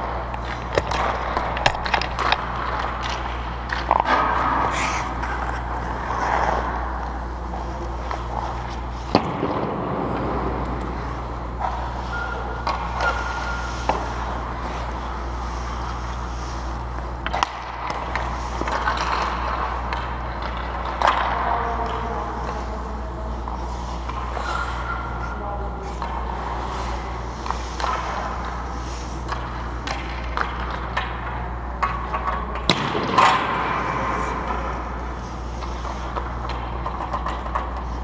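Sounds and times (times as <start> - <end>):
low hum: 0.0 - 38.0
hockey sticks striking pucks: 0.4 - 7.2, 11.6 - 14.9, 17.2 - 22.6, 29.2 - 38.0
skates scraping on ice: 3.8 - 7.2.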